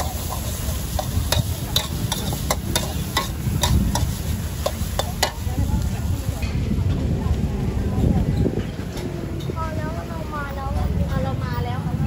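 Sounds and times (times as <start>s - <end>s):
metal spatula clanking on a wok: 0.0s - 5.5s
steady low rumble: 0.0s - 12.0s.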